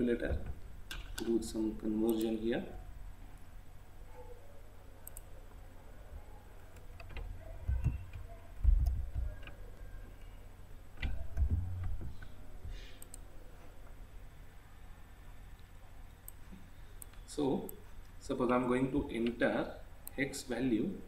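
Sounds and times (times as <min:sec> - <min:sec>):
computer mouse clicks: 0:05.0 - 0:05.3, 0:06.7 - 0:09.9, 0:13.0 - 0:13.3, 0:15.5 - 0:17.8.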